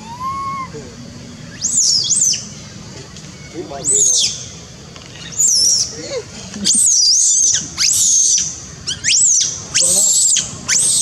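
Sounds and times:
shrill high-pitched animal calls: 0:00.0 - 0:00.9, 0:06.7 - 0:11.0.

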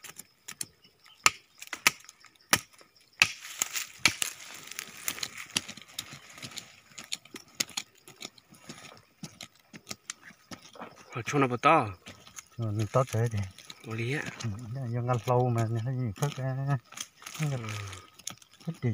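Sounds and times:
knife chopping into roots: 0:01.2 - 0:07.8
crumbling earth scraping: 0:03.5 - 0:18.9.

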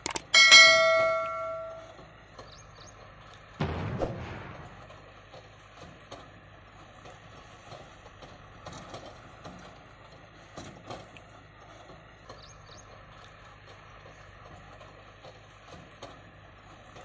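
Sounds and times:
low rumble: 0:03.6 - 0:05.4.

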